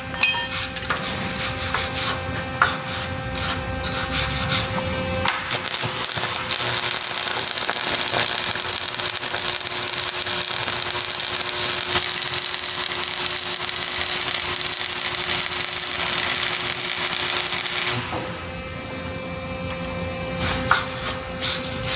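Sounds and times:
arc welding crackling sizzle: 0:03.8 - 0:18.3.

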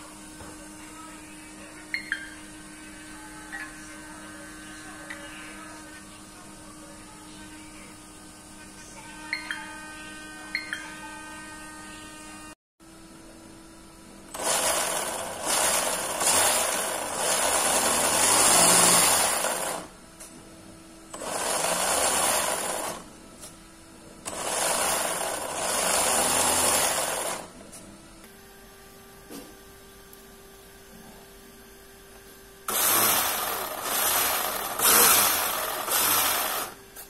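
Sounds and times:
electric motor whirring: 0:14.3 - 0:19.9, 0:21.1 - 0:23.1, 0:24.2 - 0:27.5, 0:32.7 - 0:36.9.

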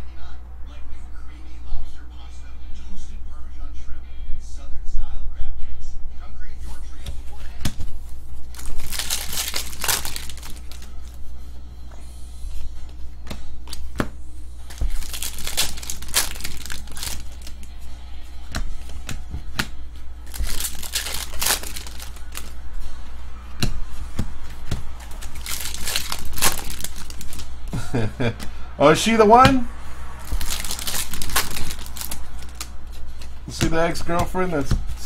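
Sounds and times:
foil wrappers crinkling: 0:08.4 - 0:11.2, 0:14.7 - 0:17.8, 0:20.2 - 0:22.6, 0:25.0 - 0:27.7, 0:30.2 - 0:33.4
cards clicking: 0:20.3 - 0:22.5.

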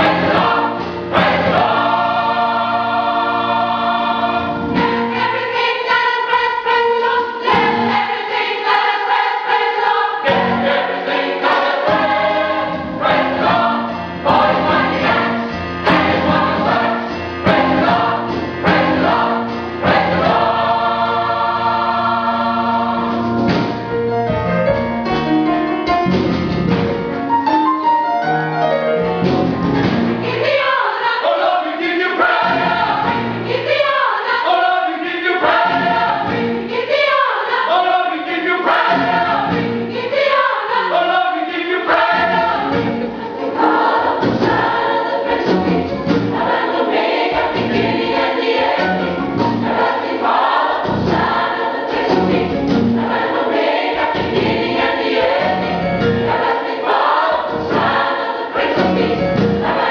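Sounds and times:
gospel choir singing: 0:00.0 - 0:24.4, 0:29.9 - 0:59.9.

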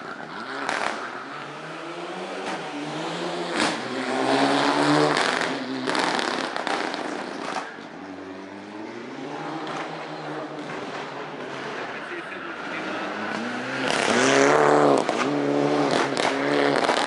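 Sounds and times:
rally car engine revving: 0:00.0 - 0:17.0
exhaust pops and bangs: 0:05.1 - 0:07.8, 0:15.9 - 0:17.0.

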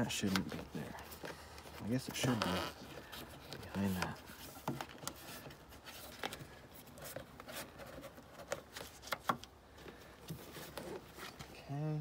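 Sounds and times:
faint rubbing of rubber seal: 0:00.0 - 0:11.7.

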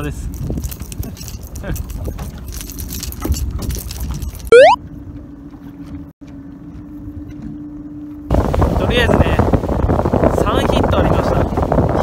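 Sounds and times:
wind: 0:00.0 - 0:12.0
short rising tone effect: 0:04.5 - 0:04.8
water noise: 0:04.5 - 0:05.5.

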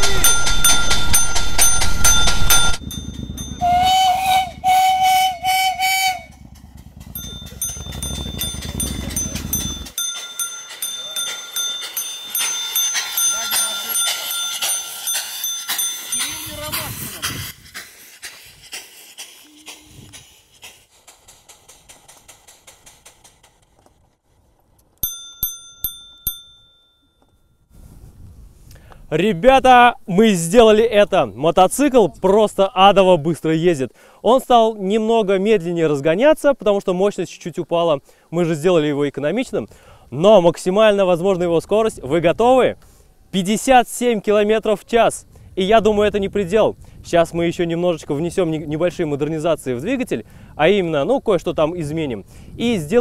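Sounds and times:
small bell ringing: 0:00.0 - 0:03.8, 0:07.0 - 0:16.9, 0:25.0 - 0:27.7
low rumble: 0:00.0 - 0:10.0
steam engine exhaust chuffing: 0:00.0 - 0:24.6
steam whistle toots: 0:03.6 - 0:06.4, 0:19.4 - 0:20.3
rapid ticking: 0:05.9 - 0:24.2.

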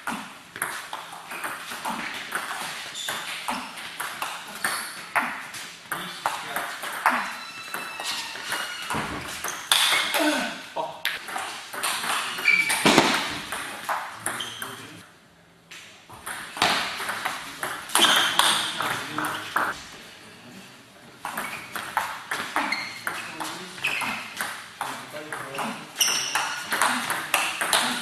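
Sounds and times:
shoe squeaks: 0:02.9 - 0:03.7, 0:07.1 - 0:10.2, 0:12.2 - 0:13.4, 0:14.3 - 0:15.0, 0:17.9 - 0:19.8, 0:21.3 - 0:21.9, 0:22.6 - 0:24.4, 0:26.0 - 0:26.7.

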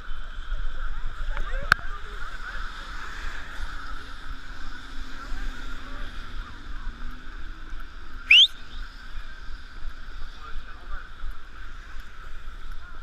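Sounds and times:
whistle-like squeak: 0:08.3 - 0:08.6.

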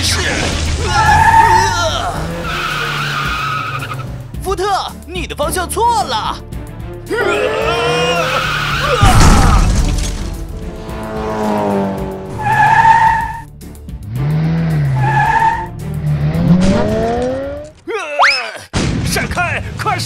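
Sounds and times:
tyres squealing: 0:00.0 - 0:04.2, 0:07.2 - 0:10.4, 0:12.3 - 0:13.5, 0:14.8 - 0:15.8
background music: 0:00.0 - 0:18.1
loud crash: 0:09.0 - 0:10.8.

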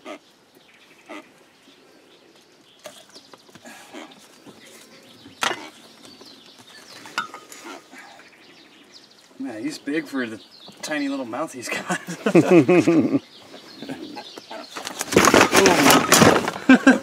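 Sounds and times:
handling clicks and rustles: 0:14.3 - 0:16.8.

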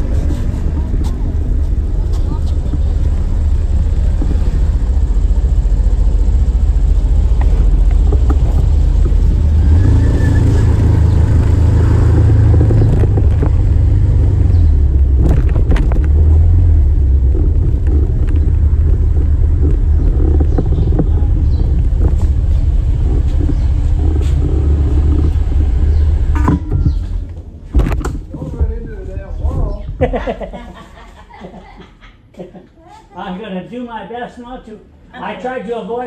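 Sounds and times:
vehicle driving in traffic: 0:00.0 - 0:28.6.

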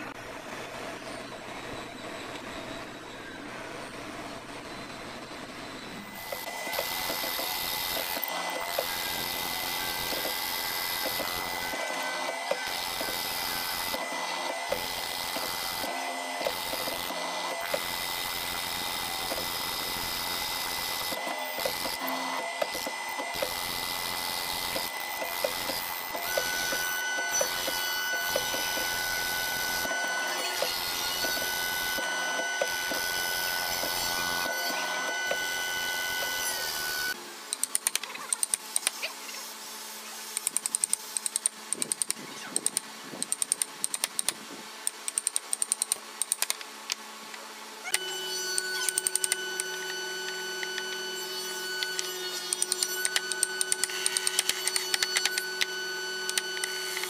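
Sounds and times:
steady machine hum: 0:00.0 - 0:37.6, 0:47.1 - 0:57.0
drill boring into wood: 0:06.1 - 0:37.2, 0:47.9 - 0:57.0.

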